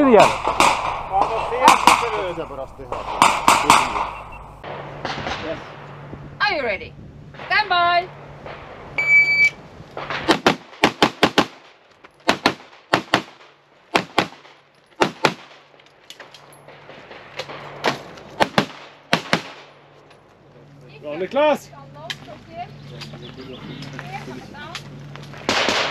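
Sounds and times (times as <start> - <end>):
handgun shots in quick pairs: 0.2 - 2.3, 3.0 - 4.2
shot-timer beep: 4.0 - 4.6, 9.0 - 9.6.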